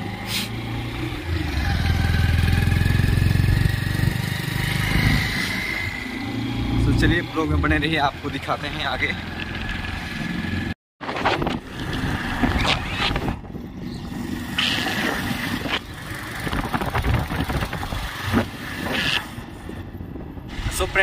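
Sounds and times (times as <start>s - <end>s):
wind buffeting the microphone: 15.5s - 21.0s.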